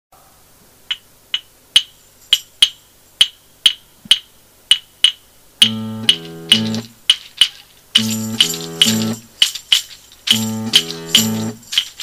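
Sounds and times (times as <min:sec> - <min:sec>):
snapping clicks keeping a beat: 0:00.9 - 0:12.0
held low-pitched instrument notes: 0:05.6 - 0:07.0, 0:08.0 - 0:09.3, 0:10.3 - 0:11.6.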